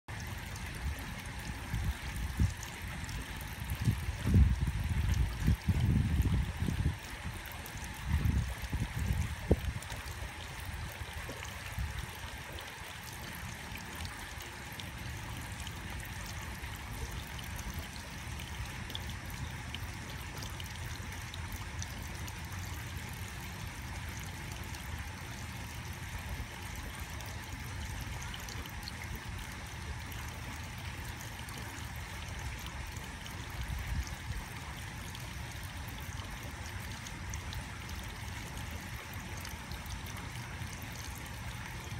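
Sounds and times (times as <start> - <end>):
water trickling from hose: 0.1 - 41.9.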